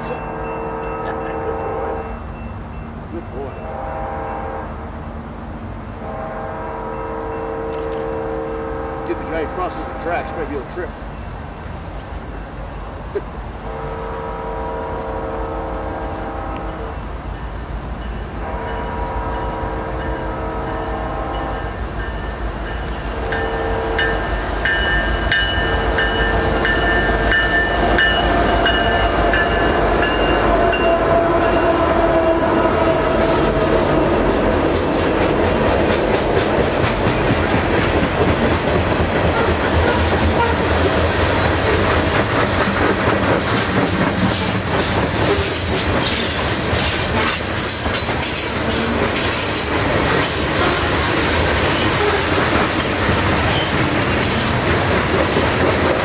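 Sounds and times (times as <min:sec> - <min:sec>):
diesel locomotives droning: 0:00.0 - 0:56.0
freight cars rumbling on rails: 0:00.0 - 0:56.0
wheels clicking on rails: 0:24.8 - 0:56.0.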